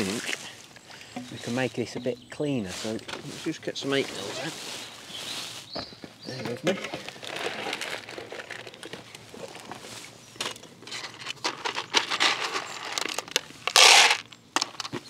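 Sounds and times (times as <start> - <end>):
bait packaging rustling: 7.0 - 9.7.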